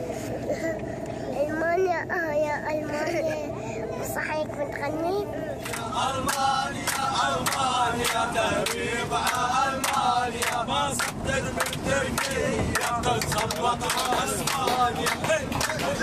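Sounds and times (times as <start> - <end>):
clapping in time: 5.6 - 16.0
men singing a chant: 5.7 - 16.0.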